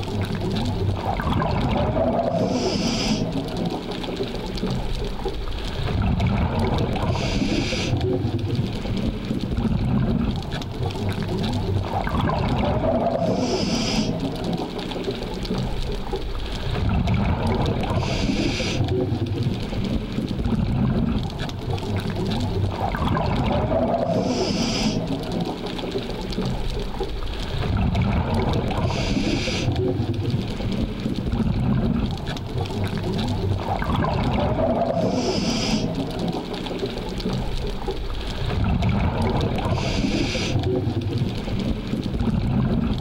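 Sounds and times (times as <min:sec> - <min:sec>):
low underwater rumble: 0:00.0 - 0:43.0
diver breathing through regulator: 0:02.3 - 0:03.4, 0:07.1 - 0:08.0, 0:13.2 - 0:14.4, 0:18.0 - 0:18.9, 0:24.1 - 0:25.2, 0:28.8 - 0:29.8, 0:35.0 - 0:36.2, 0:39.6 - 0:40.7.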